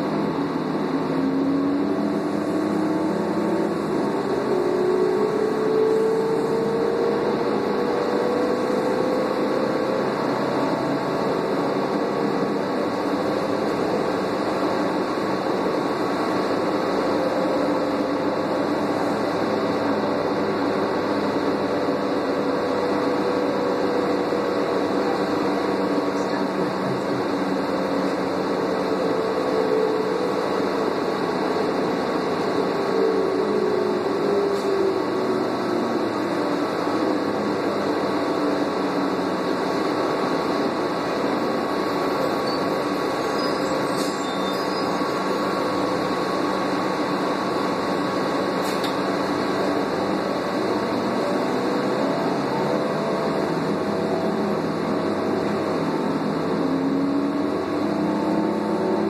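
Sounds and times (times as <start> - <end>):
bus engine drone: 0.0 - 59.0
road and ventilation noise: 0.0 - 59.0.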